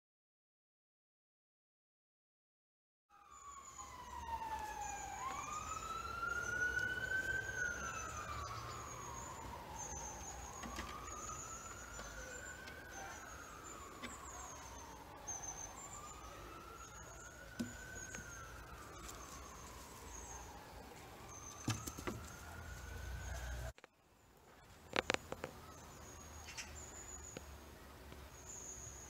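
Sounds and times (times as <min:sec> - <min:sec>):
emergency vehicle siren wailing: 0:03.1 - 0:23.8
birds chirping: 0:03.2 - 0:29.0.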